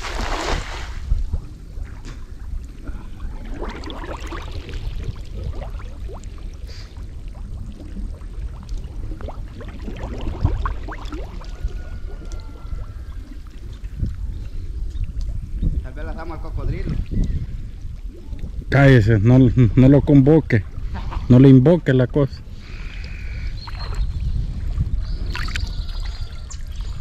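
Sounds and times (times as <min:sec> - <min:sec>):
water sloshing and splashing: 0:00.0 - 0:14.3, 0:23.6 - 0:27.0.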